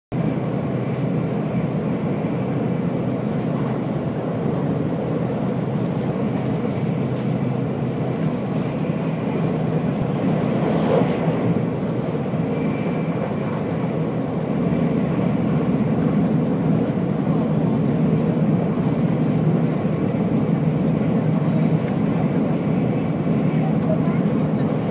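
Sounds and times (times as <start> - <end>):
train rumbling inside cabin: 0.1 - 24.9.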